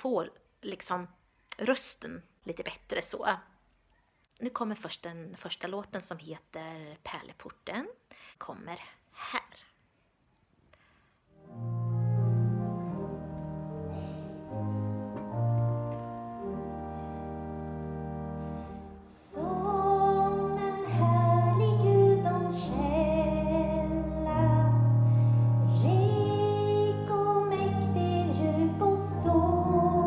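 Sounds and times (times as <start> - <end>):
slow instrumental accompaniment: 11.4 - 30.0
woman singing with vibrato: 19.0 - 25.0, 25.7 - 30.0.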